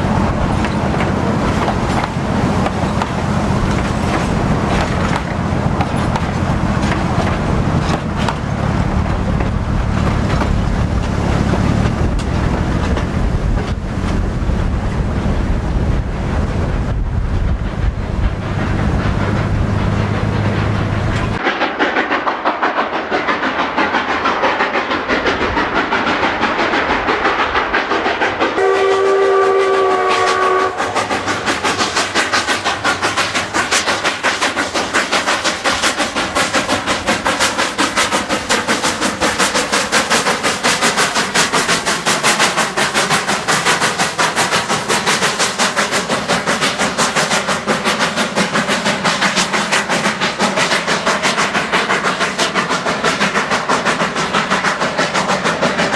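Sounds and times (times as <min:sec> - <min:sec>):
steam locomotive exhaust beats: 0:00.0 - 0:55.9
steam whistle blast: 0:28.6 - 0:31.0.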